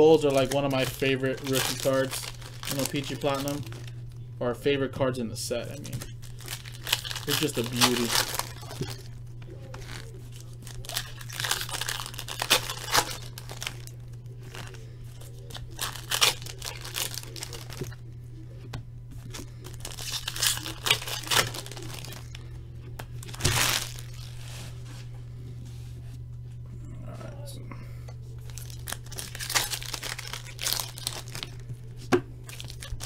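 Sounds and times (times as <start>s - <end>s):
cards being handled: 0.0s - 4.2s, 5.6s - 17.9s, 18.7s - 22.3s
foil wrappers crinkling and tearing: 0.0s - 4.3s, 5.5s - 18.1s, 19.2s - 25.1s, 28.3s - 33.0s.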